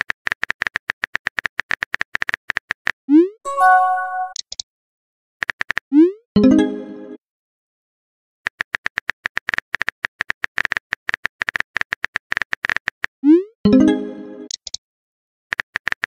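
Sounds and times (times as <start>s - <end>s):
short electronic beeps: 3.5s - 4.4s
short ringing chime: 3.5s - 4.4s.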